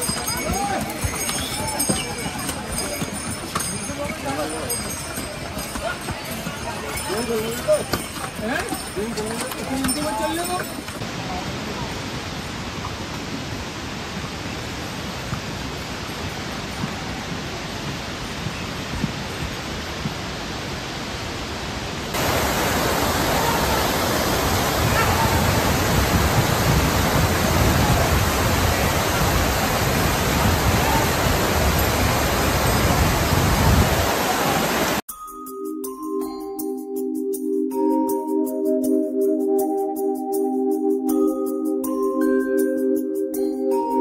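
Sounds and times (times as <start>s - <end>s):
river rushing: 0.0s - 35.0s
music: 35.1s - 44.0s.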